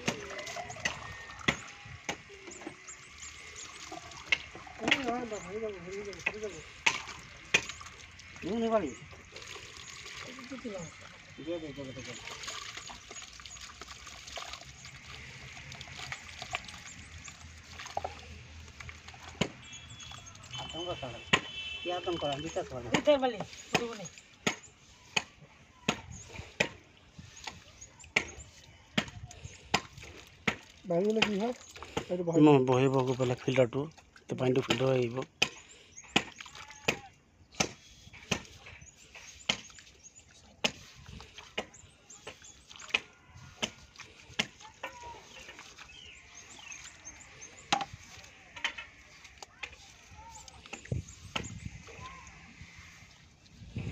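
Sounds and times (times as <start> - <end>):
birds chirping faintly: 0.0 - 53.9
water squelching in wet sand: 0.0 - 53.9.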